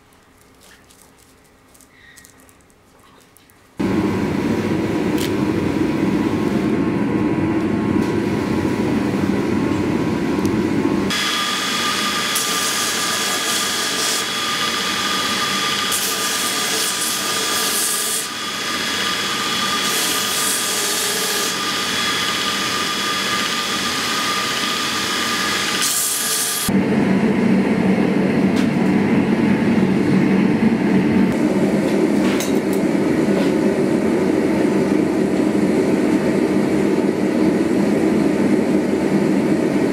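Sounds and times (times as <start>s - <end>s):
belt grinder whining: 11.1s - 26.7s.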